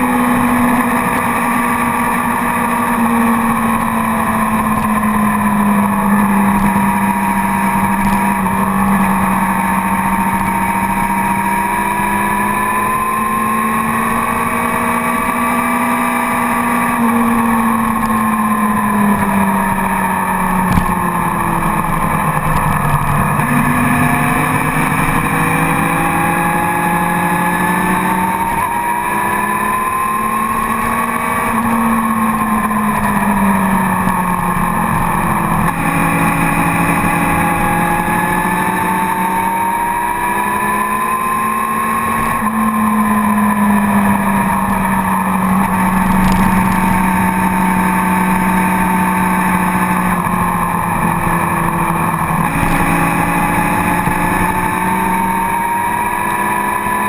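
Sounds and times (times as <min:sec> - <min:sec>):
motorcycle engine running hard: 0:00.0 - 0:57.0.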